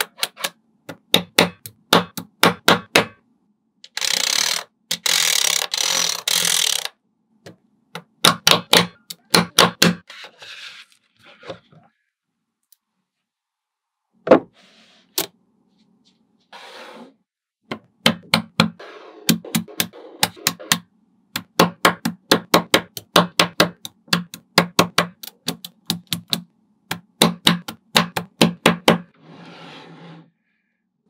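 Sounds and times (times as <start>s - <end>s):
magnetic balls clicking together: 23.8s - 26.5s.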